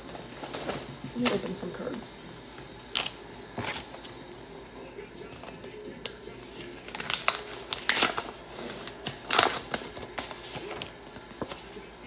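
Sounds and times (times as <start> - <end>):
packaging rustling and crinkling: 5.2 - 11.8.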